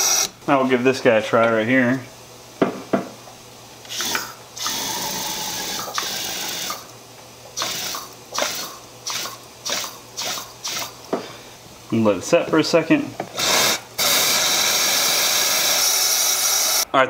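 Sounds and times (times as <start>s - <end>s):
compressed air blasts: 7.6s - 11.3s, 13.3s - 16.8s.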